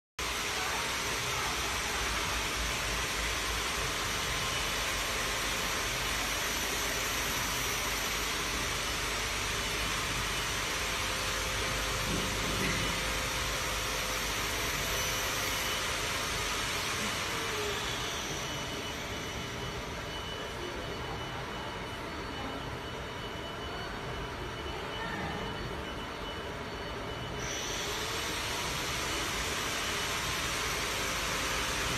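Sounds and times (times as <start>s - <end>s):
laser machine hiss: 0.2s - 20.0s, 27.4s - 31.9s.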